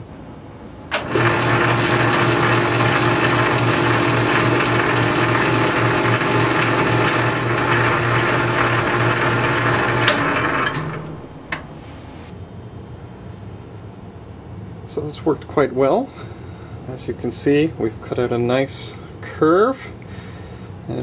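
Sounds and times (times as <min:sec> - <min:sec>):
lathe motor and gear hum: 0:00.9 - 0:12.2.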